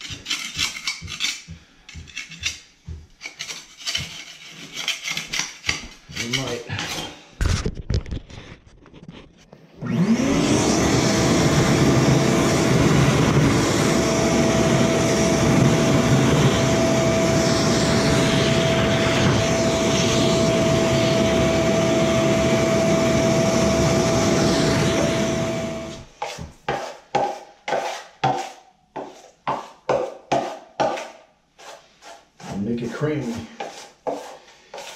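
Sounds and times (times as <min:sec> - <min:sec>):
knife scraping metal pan: 0:00.0 - 0:07.3, 0:26.2 - 0:34.9
vacuum cleaner whining: 0:09.7 - 0:26.2.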